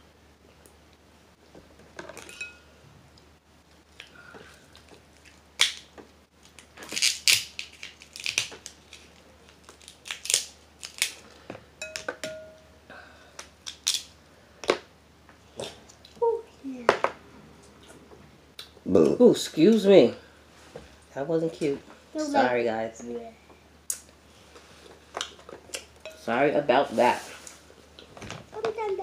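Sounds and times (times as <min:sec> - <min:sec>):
crab shells cracking: 0:04.8 - 0:11.3, 0:13.3 - 0:14.8.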